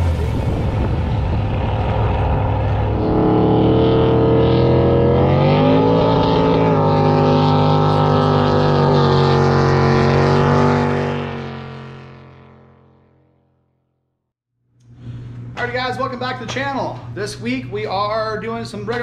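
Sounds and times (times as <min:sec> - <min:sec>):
jet boat engine running hard: 0:00.0 - 0:12.9.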